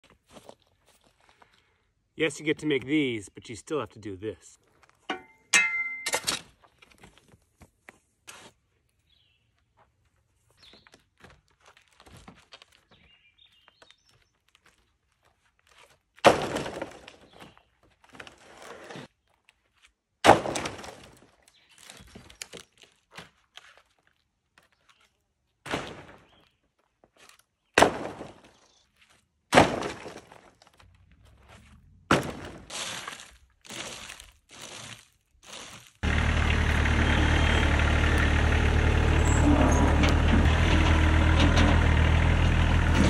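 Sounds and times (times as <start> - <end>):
wooden boards clattering onto pile: 16.2 - 17.5, 20.3 - 21.3, 29.6 - 30.8.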